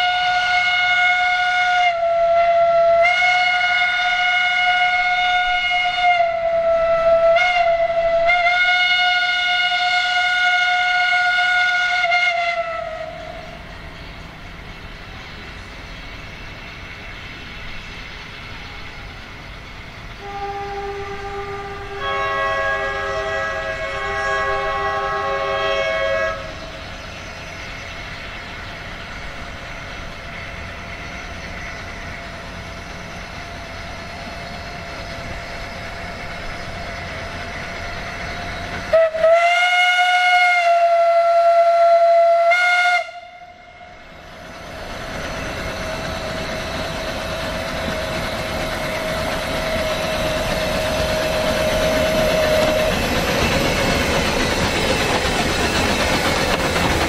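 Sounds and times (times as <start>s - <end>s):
steam locomotive whistle: 0.0s - 13.7s, 20.2s - 26.8s, 37.2s - 44.1s, 45.4s - 56.7s.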